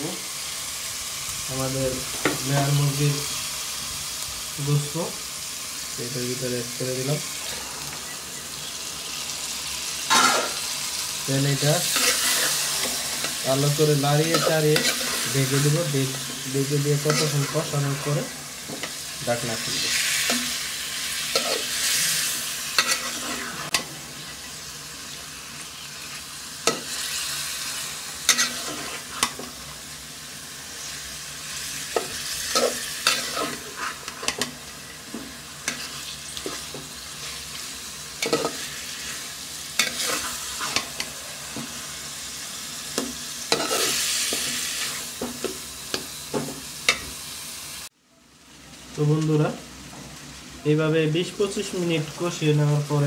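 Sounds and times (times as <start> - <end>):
chicken sizzling in pot: 0.0 - 53.0
metal spatula scraping pot: 11.8 - 13.4, 14.2 - 15.6, 22.7 - 23.8, 28.3 - 29.4, 39.8 - 41.1.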